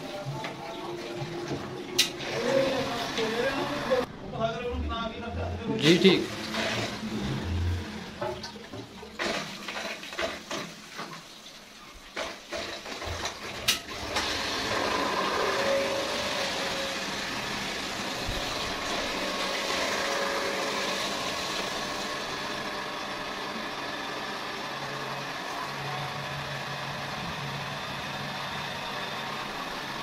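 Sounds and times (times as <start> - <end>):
water rushing through filter: 6.2 - 30.0.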